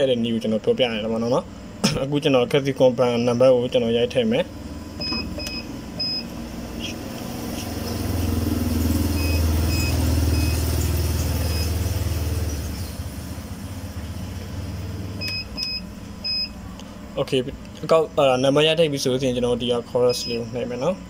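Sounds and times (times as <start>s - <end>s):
short even beeps: 9.1s - 10.6s, 11.4s - 11.8s, 20.1s - 20.8s.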